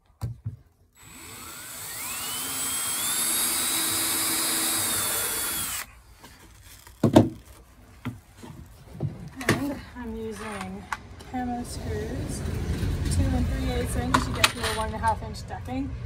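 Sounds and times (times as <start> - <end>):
cordless drill whining: 1.0 - 5.9.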